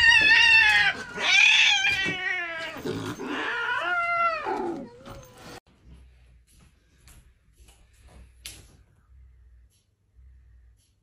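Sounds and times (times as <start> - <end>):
cat yowling: 0.0 - 5.6.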